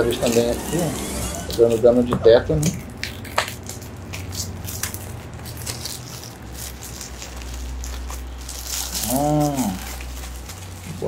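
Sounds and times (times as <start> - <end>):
plastic shrink-wrap crackling: 0.0 - 11.0.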